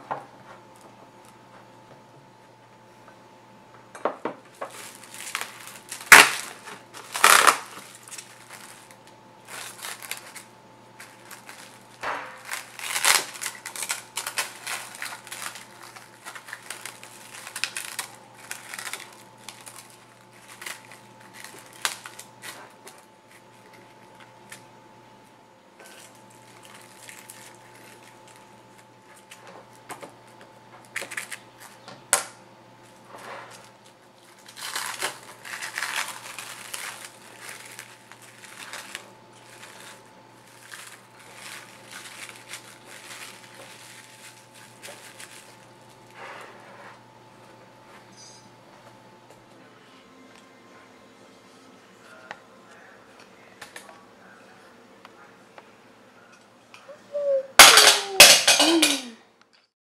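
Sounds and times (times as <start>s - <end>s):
plastic cling wrap crinkling: 4.5s - 31.8s, 32.8s - 46.9s, 57.1s - 59.2s.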